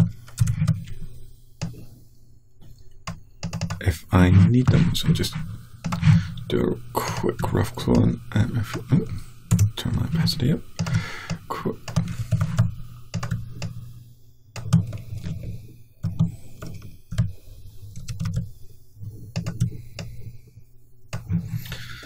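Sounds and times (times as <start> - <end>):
keyboard and mouse clicks: 0.0 - 1.8, 2.6 - 4.9, 5.8 - 6.5, 8.7 - 9.8, 10.8 - 13.8, 14.6 - 17.3, 17.9 - 18.5, 19.2 - 20.2.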